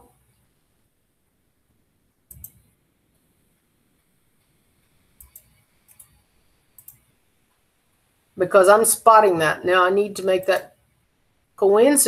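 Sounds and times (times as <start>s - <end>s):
computer mouse clicking: 2.3s - 2.7s, 5.1s - 7.1s.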